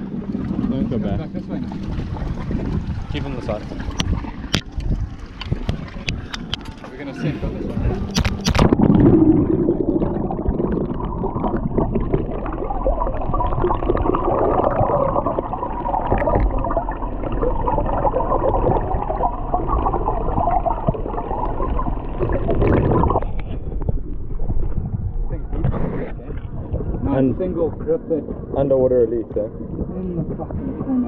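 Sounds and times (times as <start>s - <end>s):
muffled underwater churning: 0.0s - 31.0s
splash of camera entering water: 8.1s - 9.3s.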